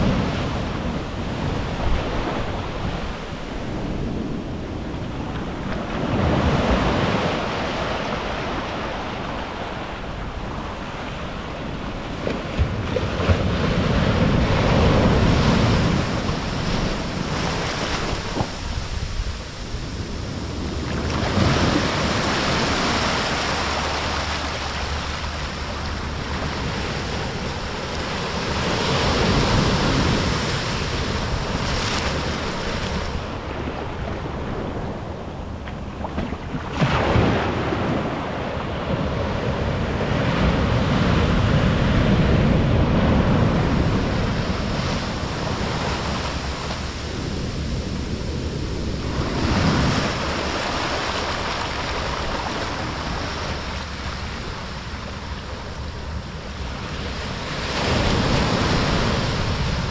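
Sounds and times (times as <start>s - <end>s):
surf washing up a beach: 0.0s - 59.9s
wave crashing: 0.0s - 59.9s.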